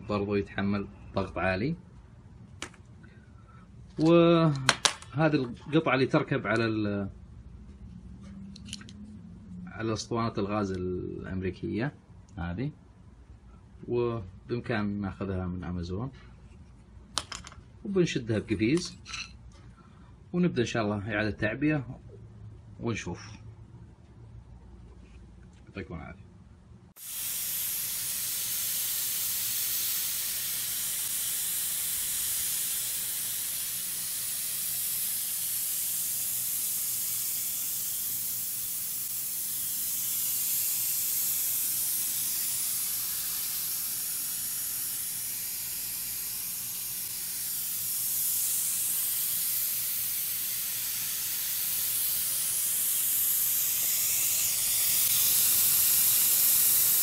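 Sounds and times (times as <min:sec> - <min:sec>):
propane gas hissing: 0:26.9 - 0:57.0.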